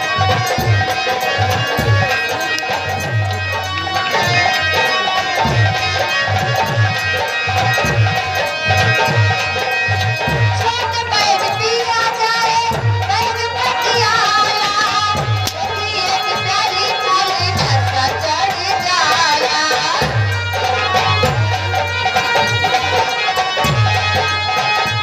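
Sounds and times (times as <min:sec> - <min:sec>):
sustained melody tones: 0:00.0 - 0:17.5
hand drums beating: 0:00.0 - 0:25.0
woman singing: 0:10.3 - 0:20.3.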